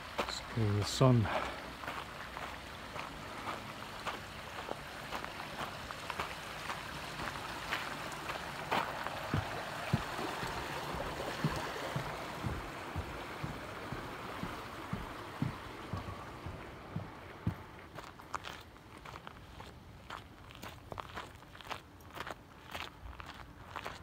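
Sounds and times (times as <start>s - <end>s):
stream water rushing: 0.0s - 19.2s
soft footstep thumps: 1.3s - 24.0s.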